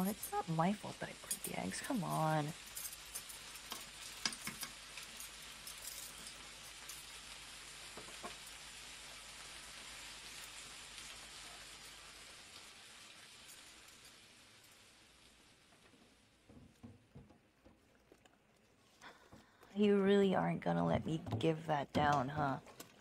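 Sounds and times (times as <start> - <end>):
food sizzling in a frying pan: 0.0 - 17.2.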